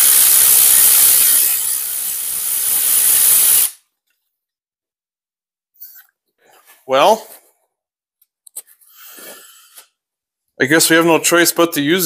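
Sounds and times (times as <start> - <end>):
compressed-air tool hissing: 0.0 - 3.8.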